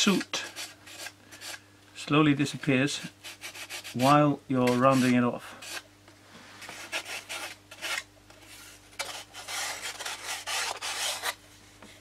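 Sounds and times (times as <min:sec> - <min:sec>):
sandpaper rubbing wood: 0:00.0 - 0:01.6, 0:03.0 - 0:05.8, 0:06.6 - 0:11.4.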